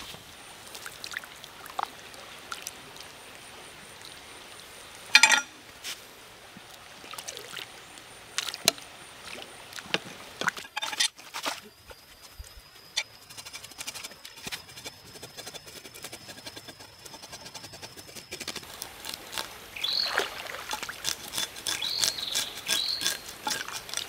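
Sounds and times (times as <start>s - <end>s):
stream running: 0.0s - 11.8s, 18.6s - 24.0s
machete scraping metal pot: 5.2s - 5.5s, 10.6s - 11.5s, 13.0s - 20.0s, 20.6s - 24.0s.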